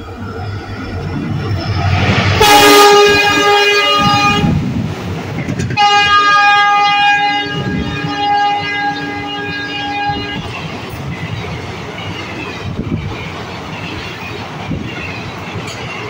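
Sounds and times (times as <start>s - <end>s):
train rushing past: 0.0s - 16.0s
train horn blasts: 2.3s - 4.6s, 5.7s - 10.6s.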